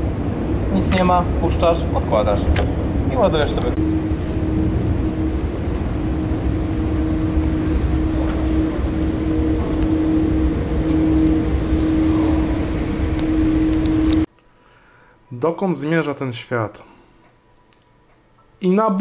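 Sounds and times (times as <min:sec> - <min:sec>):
mechanical drone with low hum: 0:00.0 - 0:19.0.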